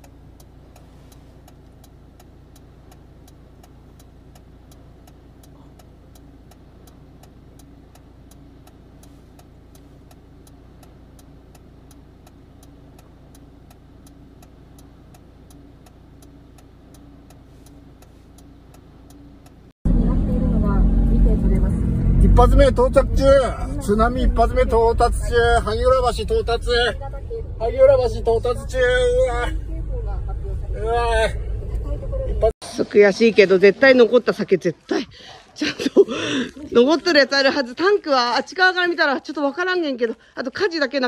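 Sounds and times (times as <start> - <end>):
faint regular ticking: 0.0 - 19.8
car engine idling: 0.0 - 32.6.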